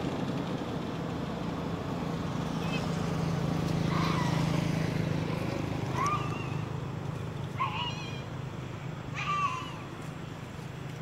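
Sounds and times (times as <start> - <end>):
baby monkey squeaky calls: 7.6 - 8.3.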